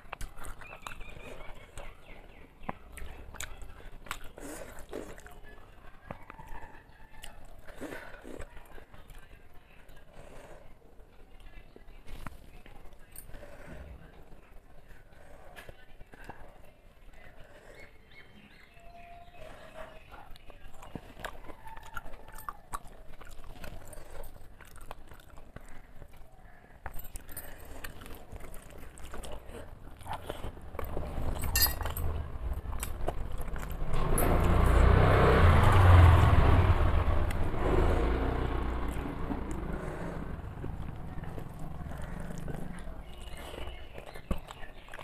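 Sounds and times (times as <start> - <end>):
chewing and mouth clicks: 0.0 - 10.4, 19.4 - 36.5, 37.3 - 45.0
low rumbling noise: 30.5 - 43.6.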